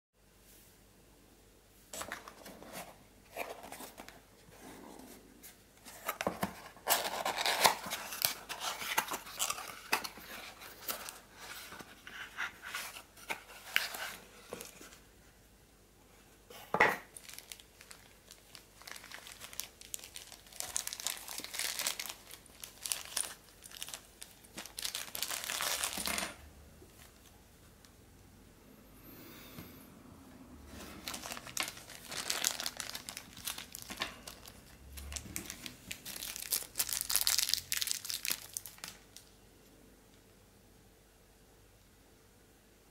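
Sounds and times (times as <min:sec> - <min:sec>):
cardboard and wrapping rustling: 0:01.9 - 0:15.1, 0:16.5 - 0:27.4, 0:30.6 - 0:39.0.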